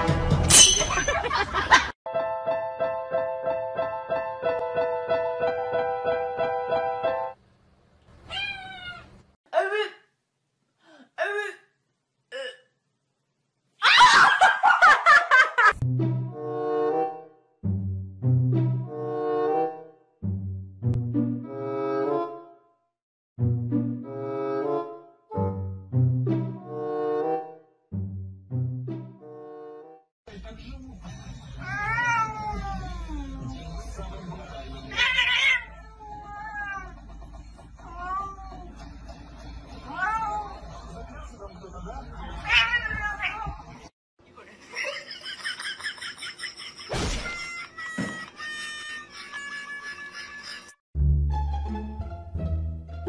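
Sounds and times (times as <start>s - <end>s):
cat yowling: 8.3s - 9.1s, 31.6s - 33.4s, 34.9s - 36.9s, 37.8s - 38.7s, 39.9s - 40.6s, 42.4s - 43.6s
woman laughing hard: 44.7s - 50.8s.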